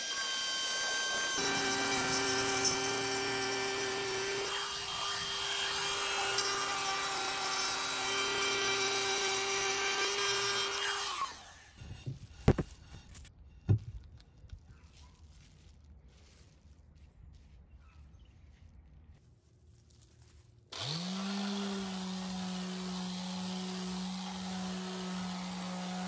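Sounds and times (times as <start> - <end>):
router spinning down: 0.0 - 11.6, 20.8 - 26.0
router whining: 0.0 - 13.3, 20.7 - 26.0.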